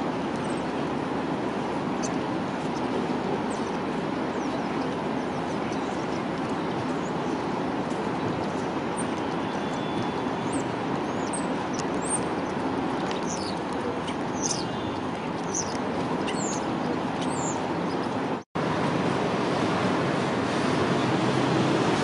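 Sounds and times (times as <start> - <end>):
street noise: 0.0 - 22.0
small birds chirping: 1.9 - 18.4
electric tram rolling: 14.9 - 22.0.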